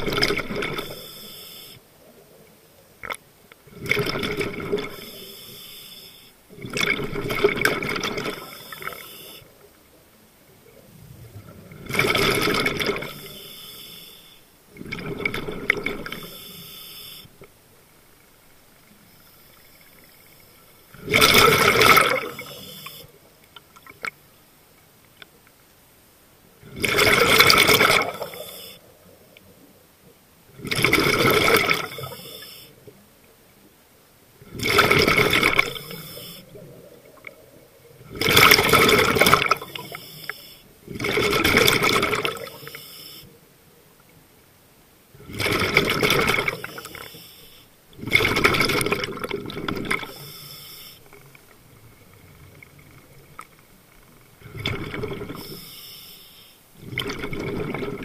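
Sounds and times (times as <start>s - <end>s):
diver's breath bubbling underwater: 21.0s - 22.6s.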